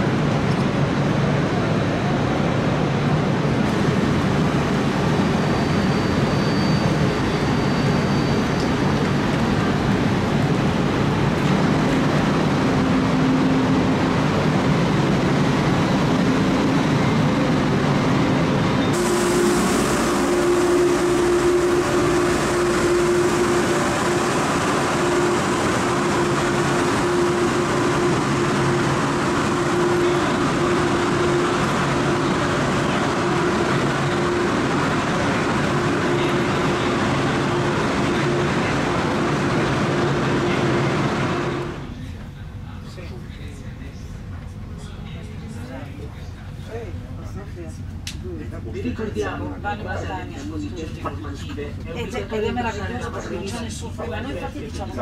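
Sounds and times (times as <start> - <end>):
electric trains humming: 0.0 - 55.0
steady hum with single tone: 18.8 - 34.8.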